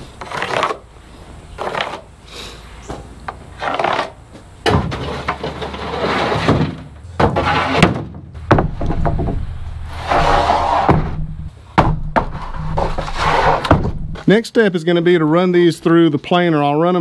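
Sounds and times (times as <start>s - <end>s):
boards scraping: 0.0s - 14.4s
wooden boards knocking: 4.6s - 9.5s, 10.8s - 13.0s.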